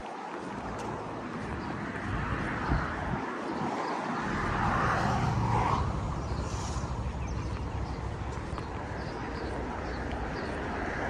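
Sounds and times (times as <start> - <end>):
vehicle passing: 4.1 - 11.0.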